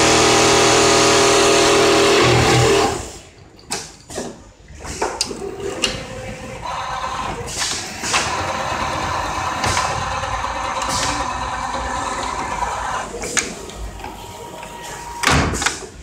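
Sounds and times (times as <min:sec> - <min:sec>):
sewing machine motor whine: 0:00.0 - 0:03.1, 0:08.2 - 0:13.2.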